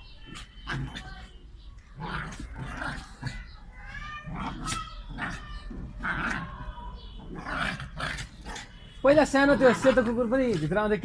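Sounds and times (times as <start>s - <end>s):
small dogs yelping while playing: 2.0s - 8.7s.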